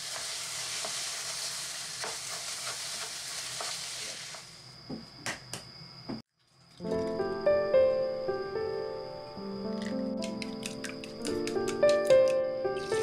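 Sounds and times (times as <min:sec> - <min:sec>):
rice sizzling in a pan: 0:00.0 - 0:04.9, 0:12.8 - 0:13.0.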